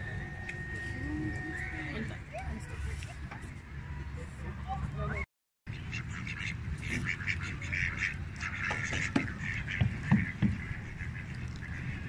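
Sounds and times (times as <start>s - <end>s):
ducks quacking: 5.7s - 12.0s.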